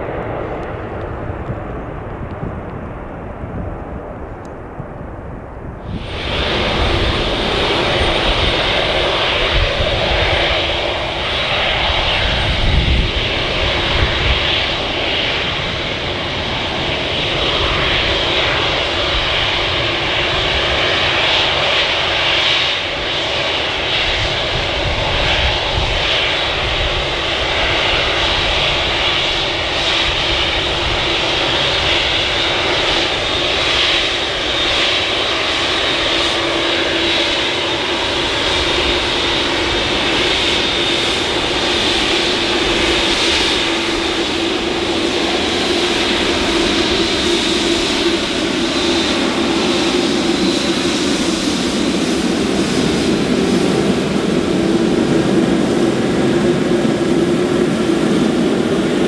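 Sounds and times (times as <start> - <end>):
jet engines running: 0.0 - 59.0.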